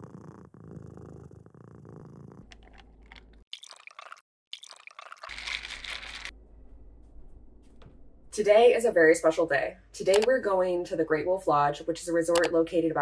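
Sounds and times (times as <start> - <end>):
cat purring: 0.0 - 2.8
liquid pouring over ice: 3.5 - 6.3
spoon stirring ice: 3.6 - 6.3.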